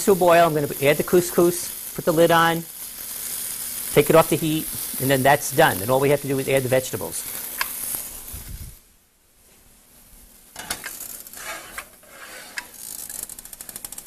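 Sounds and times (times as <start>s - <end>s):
frying sizzle: 0.0s - 8.9s, 10.0s - 14.0s
stove burner clicking: 7.5s - 7.8s.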